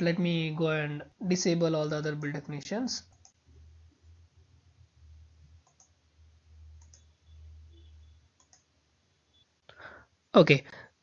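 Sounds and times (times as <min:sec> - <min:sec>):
computer mouse clicks: 0:03.1 - 0:03.5, 0:05.5 - 0:06.0, 0:06.7 - 0:08.7
low hum: 0:03.1 - 0:09.6.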